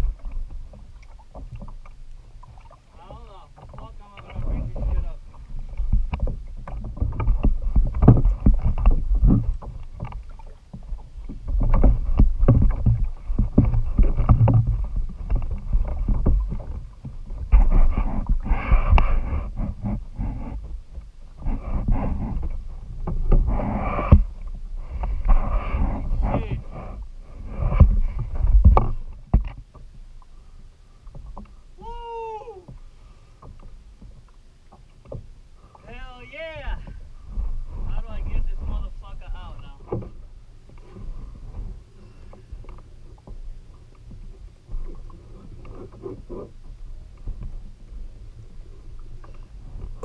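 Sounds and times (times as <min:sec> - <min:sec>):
water sloshing around kayak: 0:00.0 - 0:50.0
knocks against plastic hull: 0:05.8 - 0:10.2.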